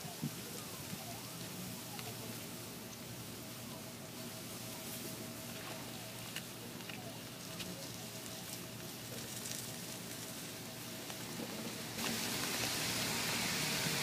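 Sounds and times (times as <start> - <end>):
food sizzling on a grill: 12.0 - 14.0.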